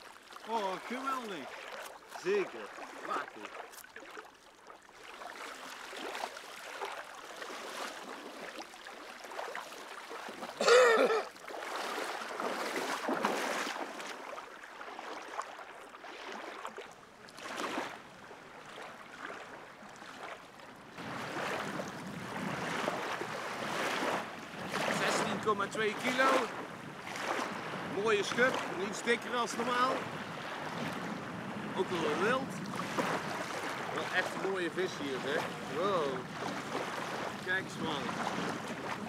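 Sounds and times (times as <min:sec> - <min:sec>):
water sloshing and splashing: 0:00.0 - 0:39.0.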